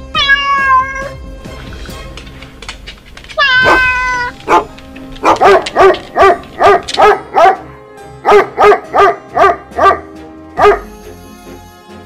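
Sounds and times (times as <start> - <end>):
dog barking rapidly: 3.4 - 7.7, 8.3 - 10.0, 10.6 - 10.9.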